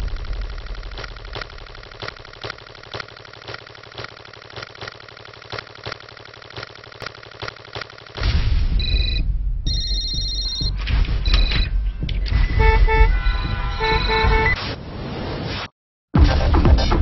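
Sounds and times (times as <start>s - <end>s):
sharp clicks: 0.0s - 8.2s.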